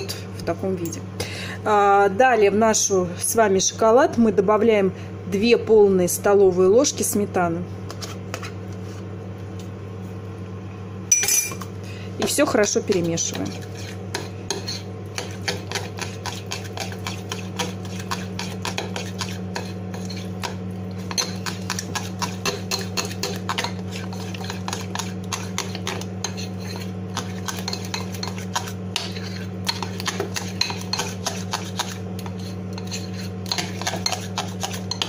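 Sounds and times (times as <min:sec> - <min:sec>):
steady low hum: 0:00.0 - 0:35.0
spoon clinking against glass: 0:11.1 - 0:11.6
metal spoon scraping glass bowl: 0:21.1 - 0:35.0.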